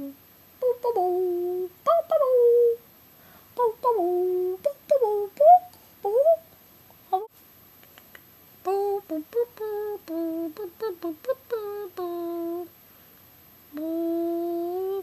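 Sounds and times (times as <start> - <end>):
person humming: 0.0 - 2.8, 3.6 - 6.4, 7.1 - 7.3, 8.7 - 12.7, 13.7 - 15.0.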